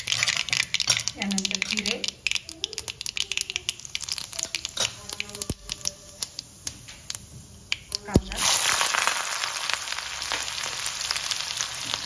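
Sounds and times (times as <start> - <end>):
seeds popping in hot oil: 0.0 - 12.0.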